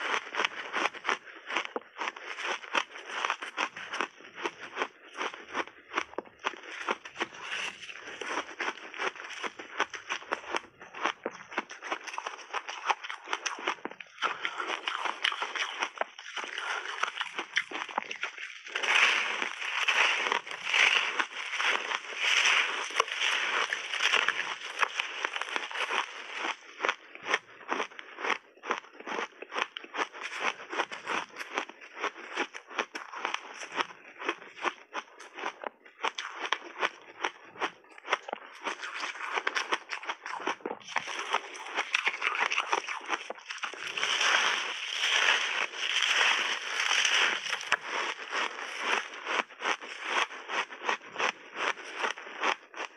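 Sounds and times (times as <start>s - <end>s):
ice crunching while chewed: 0.0s - 52.9s.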